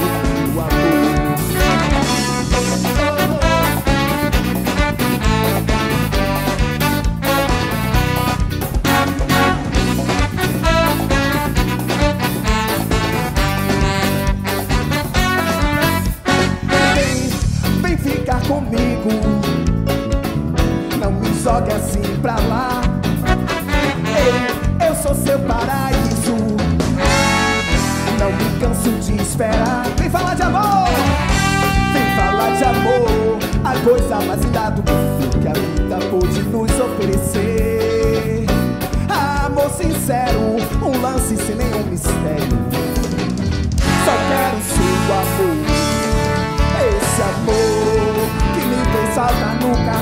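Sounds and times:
saxophone: 0.0s - 17.6s, 23.1s - 25.1s, 27.0s - 33.6s, 43.8s - 50.0s
male lead vocal: 0.0s - 19.8s, 20.8s - 43.0s, 43.8s - 50.0s
drum kit with cymbals: 0.0s - 50.0s
keyboard: 0.0s - 50.0s
live band playing upbeat music: 0.0s - 50.0s.

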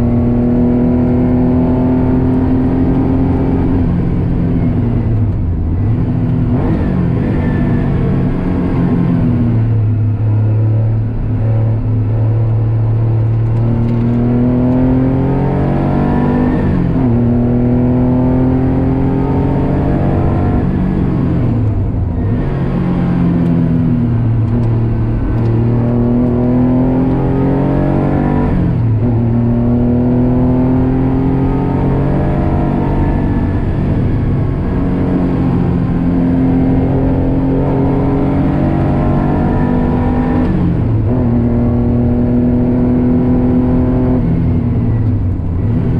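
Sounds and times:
race car engine revving: 0.0s - 45.9s.

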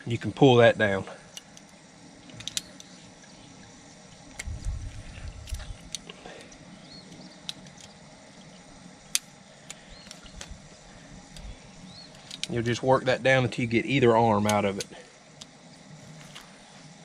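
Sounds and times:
light clicks: 1.3s - 3.0s
low rumble: 4.3s - 6.0s.

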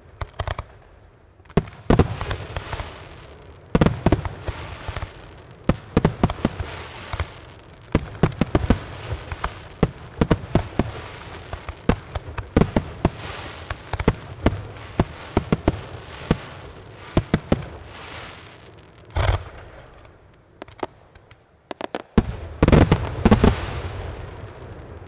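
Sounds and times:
fireworks bangs: 1.5s - 25.0s
small pops: 20.0s - 22.0s.

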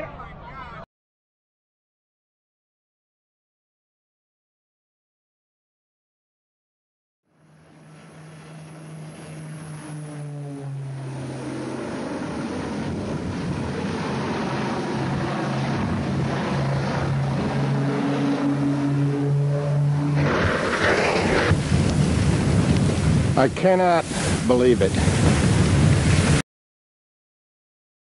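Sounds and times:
propeller airplane droning: 7.3s - 26.4s.

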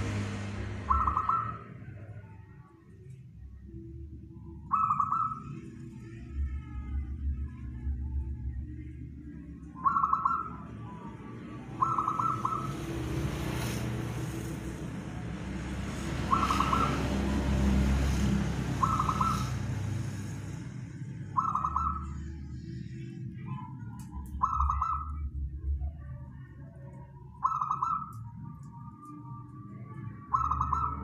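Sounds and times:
steady low rumble: 0.0s - 12.7s, 14.3s - 31.0s
dove cooing: 0.1s - 1.6s, 4.7s - 5.6s, 9.8s - 11.0s, 11.6s - 13.2s, 16.2s - 17.9s, 18.6s - 19.9s, 21.3s - 22.5s.

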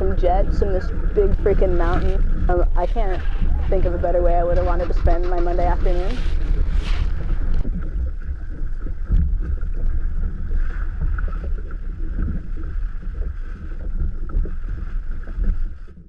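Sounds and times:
water noise from kayak: 0.0s - 16.0s
wind rumbling on microphone: 0.0s - 16.0s.

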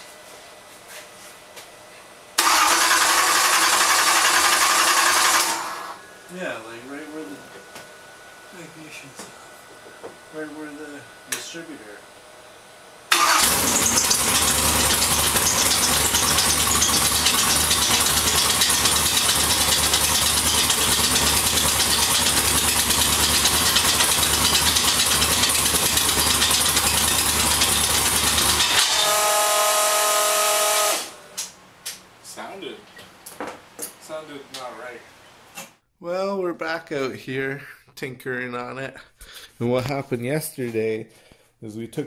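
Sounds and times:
car engine running loud: 13.1s - 29.0s.

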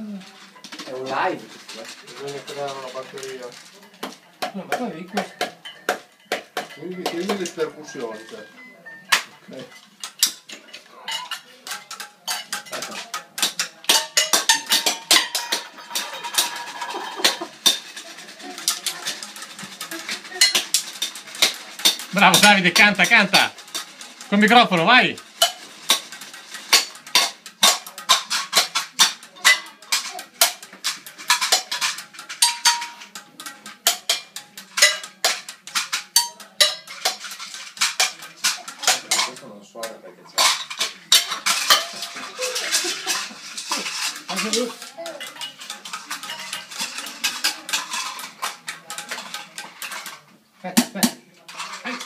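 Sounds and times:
stick tapping plastic container: 11.6s - 50.2s.

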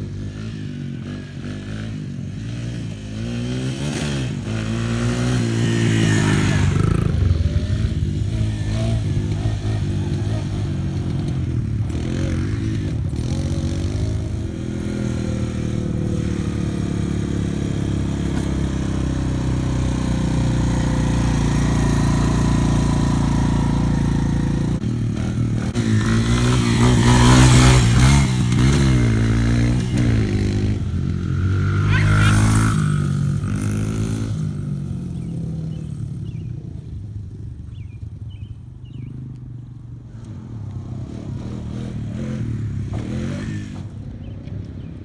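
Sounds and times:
four-wheeler engine revving: 0.0s - 39.4s, 40.5s - 44.4s.

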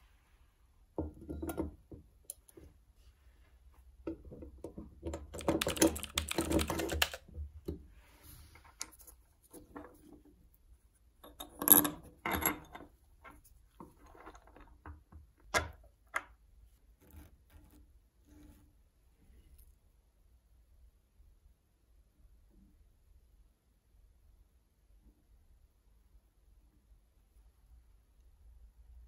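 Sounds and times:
small parts clicking and rattling: 4.1s - 7.8s.

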